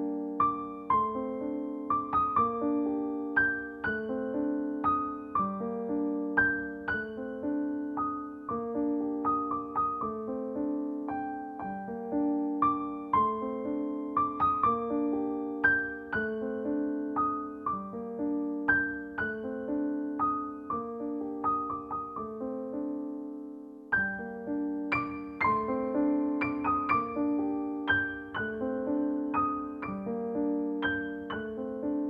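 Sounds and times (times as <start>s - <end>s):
piano music: 0.0s - 32.0s.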